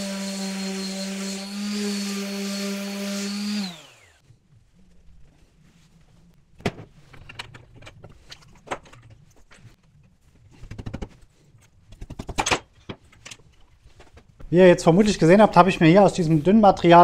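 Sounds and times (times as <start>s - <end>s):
electric saw winding down: 0.0s - 4.2s.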